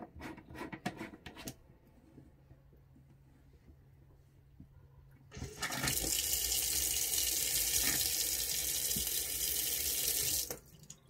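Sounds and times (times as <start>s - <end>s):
tap water running into metal sink: 5.4s - 11.0s.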